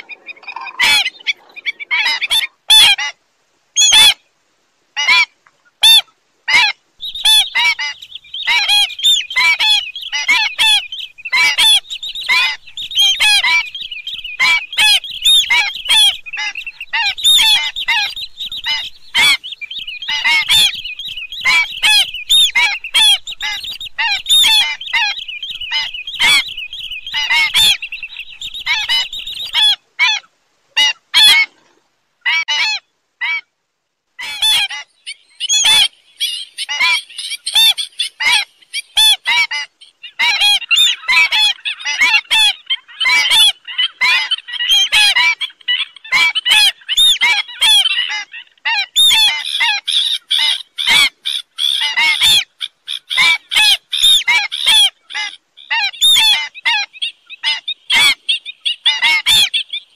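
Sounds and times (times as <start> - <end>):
stilts yapping calls: 0.0 - 3.2, 14.4 - 20.8, 34.2 - 36.0, 36.6 - 59.9.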